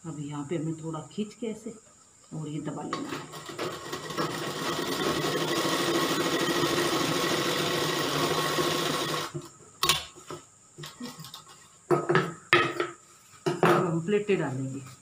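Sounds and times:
sewing machine stitching: 3.1 - 9.4.

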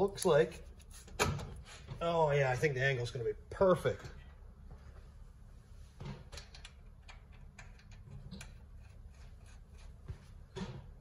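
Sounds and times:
light clicks and taps of parts: 6.3 - 9.9.

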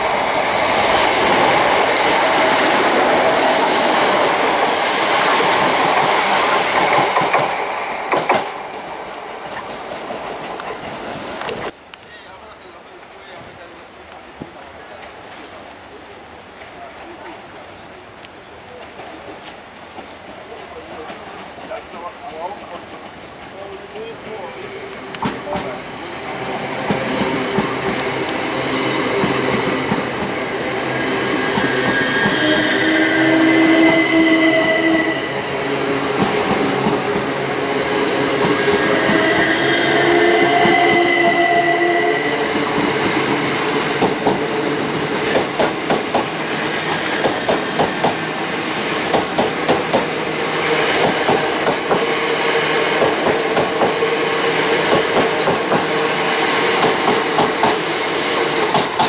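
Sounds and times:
electric train whine: 0.0 - 11.8, 23.6 - 59.0
train wheels clacking on rail joints: 5.5 - 8.6, 42.6 - 48.3, 49.0 - 50.2, 51.0 - 52.4, 53.0 - 54.1, 54.9 - 56.0, 56.7 - 57.9, 58.6 - 59.0.

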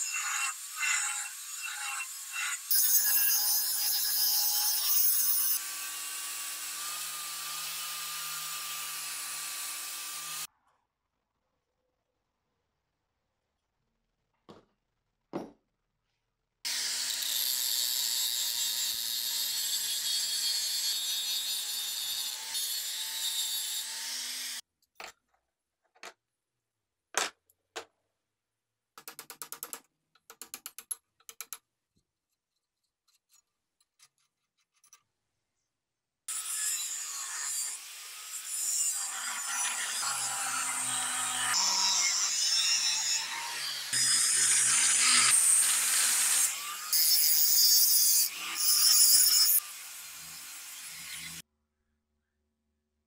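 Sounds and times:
angle grinder cutting steel: 0.0 - 10.5, 16.7 - 24.6, 36.3 - 51.4.

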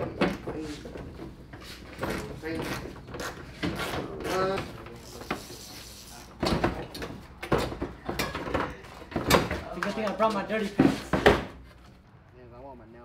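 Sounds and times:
knocks and clattering: 6.4 - 11.9.

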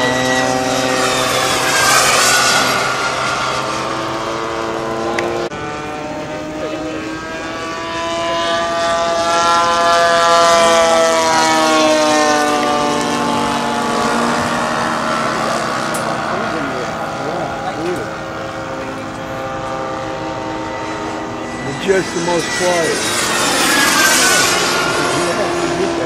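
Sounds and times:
model airplane engine buzzing: 0.0 - 26.0.

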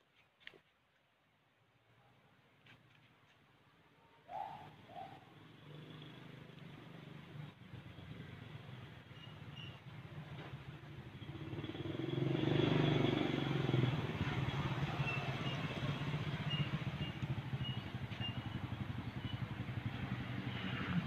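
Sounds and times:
vehicle engine running: 5.9 - 21.0.

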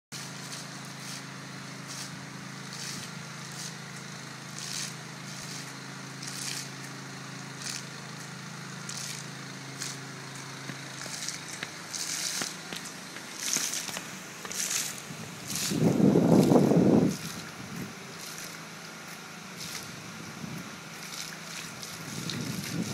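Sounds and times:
fountain jets splashing: 0.2 - 22.9
low hum: 8.8 - 22.9.

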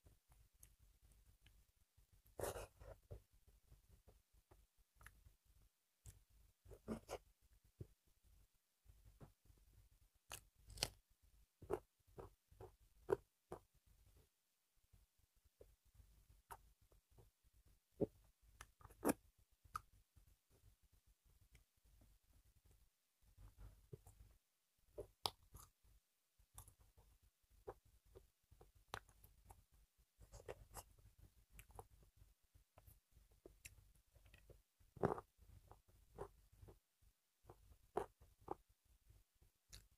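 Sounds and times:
faint eating clicks and smacks: 4.0 - 5.4, 11.6 - 13.8, 18.0 - 20.3, 23.4 - 38.7, 39.4 - 39.9.

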